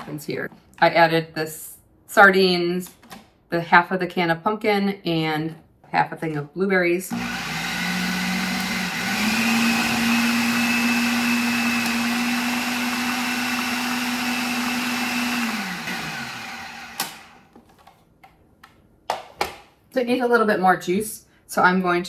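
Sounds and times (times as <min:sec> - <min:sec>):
food processor motor running: 0:07.1 - 0:17.5
food processor click: 0:11.0 - 0:17.4.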